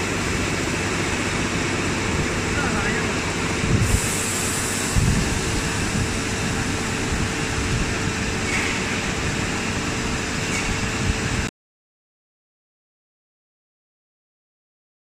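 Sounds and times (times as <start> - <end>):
factory machinery hum: 0.0 - 11.5
microphone rumbles: 4.9 - 6.2.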